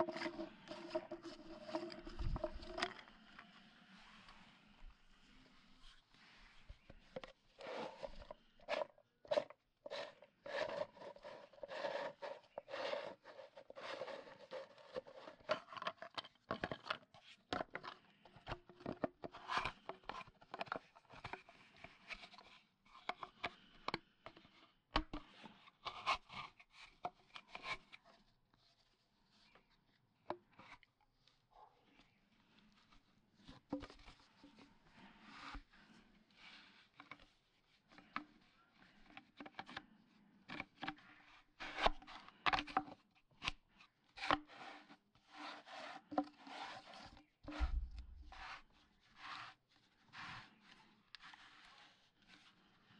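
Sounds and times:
plastic pipe fittings clicking: 0.0 - 3.5, 47.4 - 48.4.

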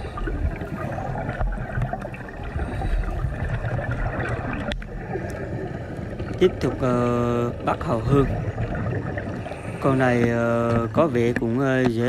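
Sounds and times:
underwater gurgling wash: 0.0 - 12.0.

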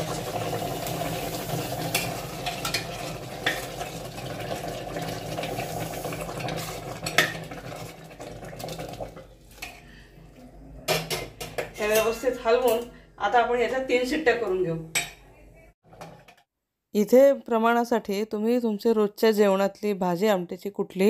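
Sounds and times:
water sizzling and bubbling in pot: 0.0 - 10.0.

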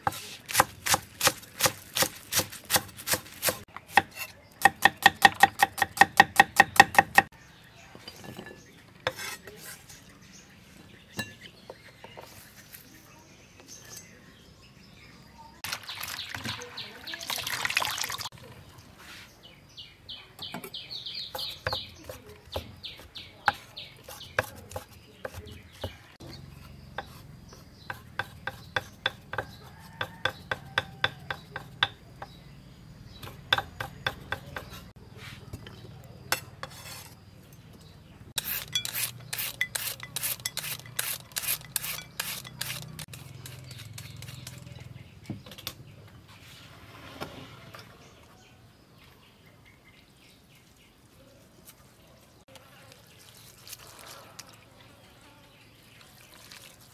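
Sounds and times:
cleaver chopping on wooden block: 0.0 - 7.3, 27.0 - 32.4, 33.2 - 34.9
scraping and handling: 8.0 - 10.1, 34.6 - 44.8.

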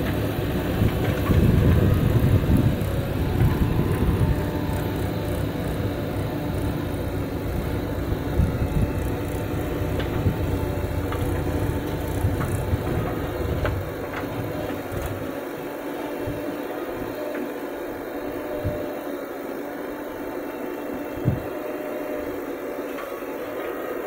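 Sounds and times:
tractor engine running: 0.0 - 17.1
backhoe diesel engine running: 0.0 - 24.0.

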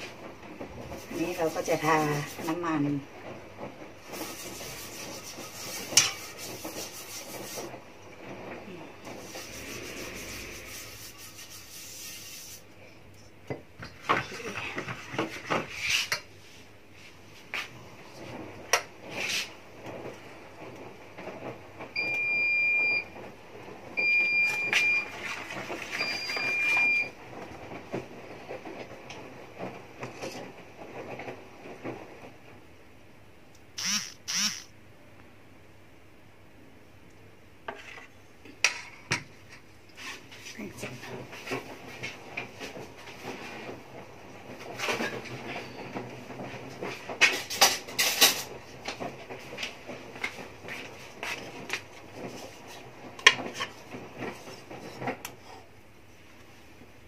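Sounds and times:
steady hiss: 9.1 - 12.7
appliance electronic beeps: 22.0 - 23.1, 24.0 - 25.1, 26.0 - 27.2.

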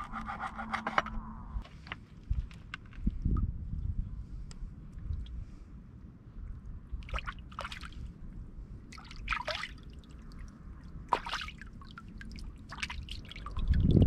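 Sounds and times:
water splashing and trickling: 6.6 - 14.0.

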